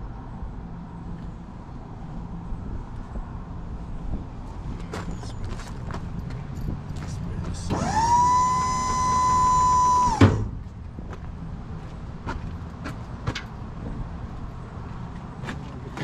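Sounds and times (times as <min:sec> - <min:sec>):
power tool motor whine: 0:07.7 - 0:10.4.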